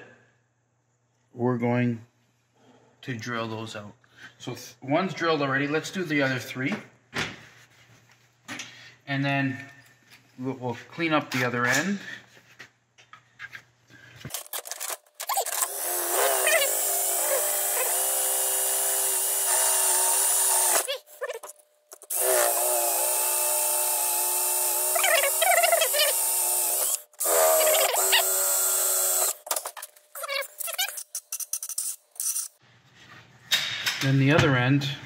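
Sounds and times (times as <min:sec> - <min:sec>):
cordless drill drilling plastic: 0:14.4 - 0:21.4, 0:22.0 - 0:29.5.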